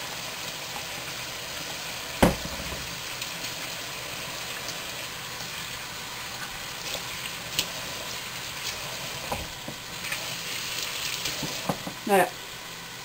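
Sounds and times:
beef sizzling in a frying pan: 0:00.0 - 0:13.0
sharp knock: 0:02.2 - 0:02.9.

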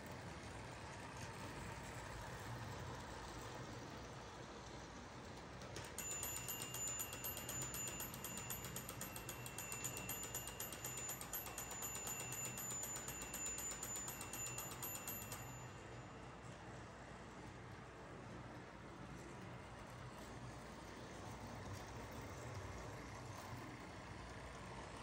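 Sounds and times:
model train motor clicking and whining: 0:01.0 - 0:15.7.

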